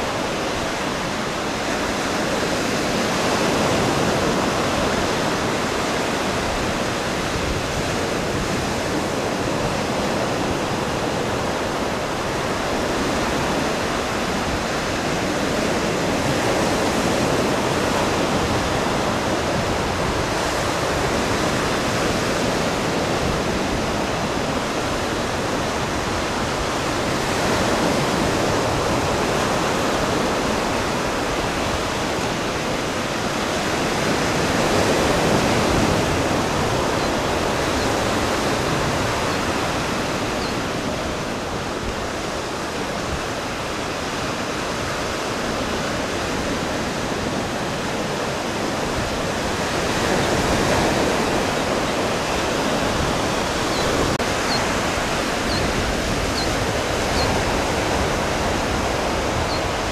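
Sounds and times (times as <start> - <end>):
ocean surf washing on beach: 0.0 - 59.9.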